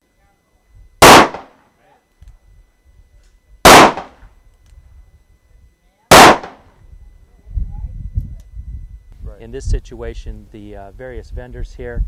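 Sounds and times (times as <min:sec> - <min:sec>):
handgun shots: 0:01.0 - 0:01.5, 0:03.7 - 0:04.2, 0:06.1 - 0:06.6.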